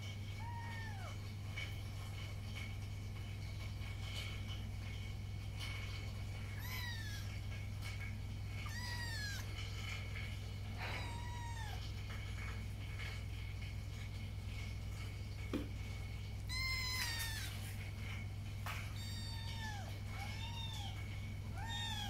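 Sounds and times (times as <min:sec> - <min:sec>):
steady low hum: 0:00.0 - 0:22.0
kittens mewing: 0:08.6 - 0:09.6, 0:10.8 - 0:11.9.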